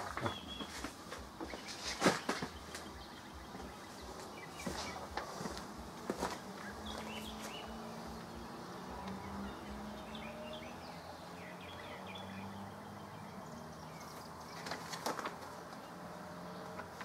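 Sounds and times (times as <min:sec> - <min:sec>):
paper rustling: 0:00.0 - 0:07.6, 0:14.6 - 0:15.8
small birds chirping: 0:00.0 - 0:17.0.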